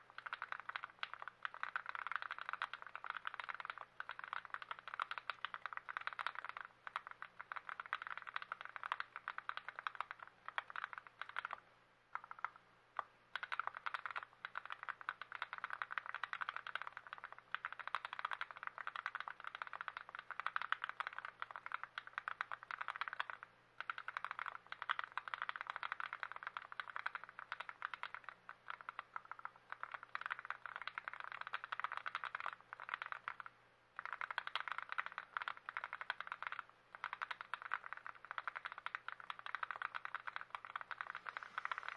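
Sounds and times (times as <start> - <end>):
mechanical keyboard typing: 0.0 - 41.9.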